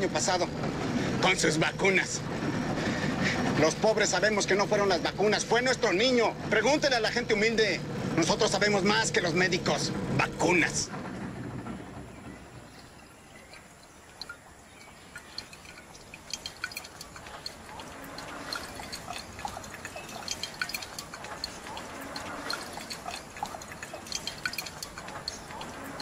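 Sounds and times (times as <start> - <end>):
water dripping and splashing: 12.5 - 26.0.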